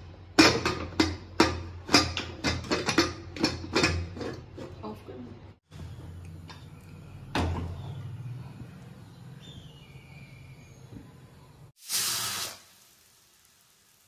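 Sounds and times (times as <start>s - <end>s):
brief loud hiss: 11.8s - 13.1s.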